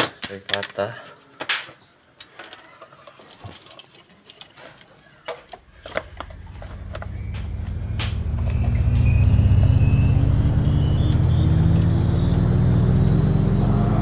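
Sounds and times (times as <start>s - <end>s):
metallic clicks of engine parts: 0.0s - 9.1s
motor vehicle engine rumble: 5.6s - 14.0s.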